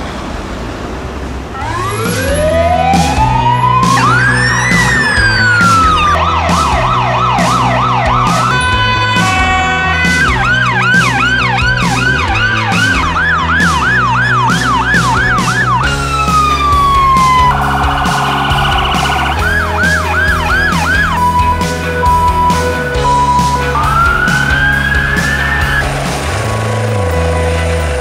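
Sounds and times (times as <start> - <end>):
emergency vehicle sirens: 1.5 - 28.0
background music with steady beat: 1.6 - 28.0.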